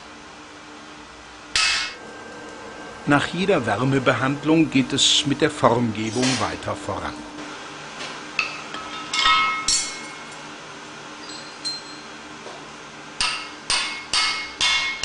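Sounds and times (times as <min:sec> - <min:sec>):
hammer striking steel on anvil: 0:01.6 - 0:02.0, 0:08.4 - 0:10.3, 0:13.2 - 0:15.0.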